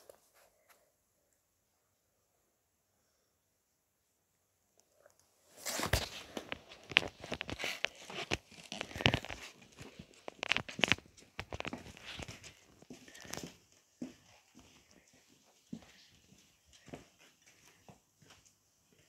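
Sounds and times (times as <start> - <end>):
rustling and scratching: 5.0 - 13.6.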